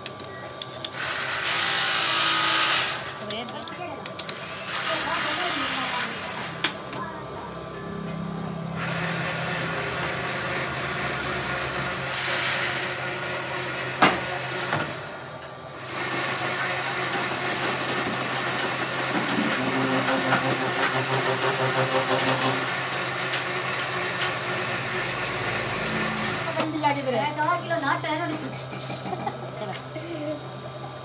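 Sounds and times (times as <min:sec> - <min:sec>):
metal lathe motor hum: 0:00.8 - 0:07.1, 0:08.0 - 0:27.9.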